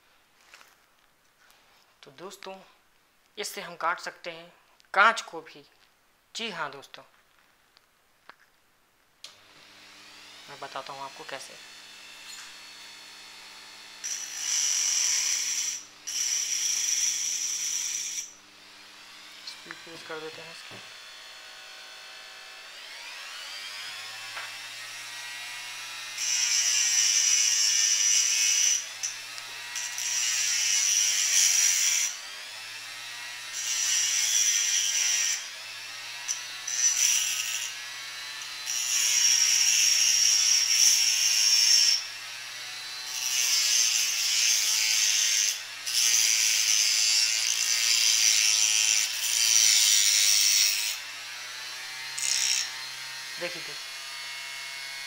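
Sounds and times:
die grinder motor whine: 9.3s - 44.2s
cut-off wheel grinding glass: 9.6s - 21.1s, 33.2s - 42.2s.

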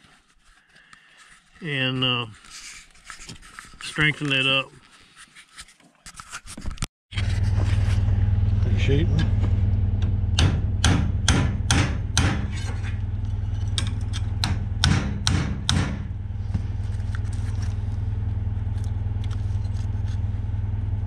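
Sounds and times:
steady engine hum: 7.1s - 21.0s
hammer striking steel frame: 9.2s - 16.2s.

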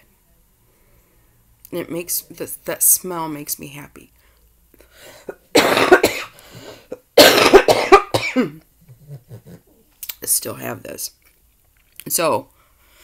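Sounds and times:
woman coughing: 5.2s - 8.6s.

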